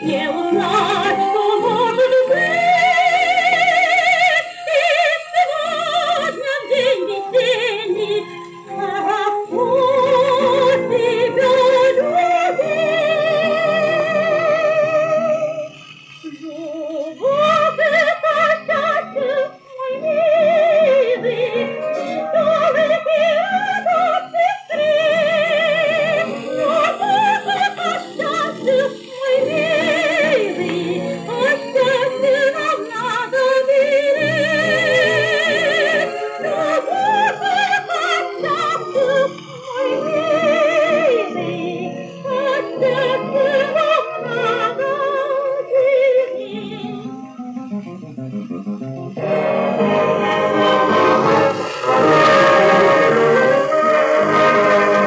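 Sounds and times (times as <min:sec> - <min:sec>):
woman singing with wide vibrato: 0:00.0 - 0:47.4, 0:49.2 - 0:55.0
dance orchestra from old record: 0:00.0 - 0:55.0.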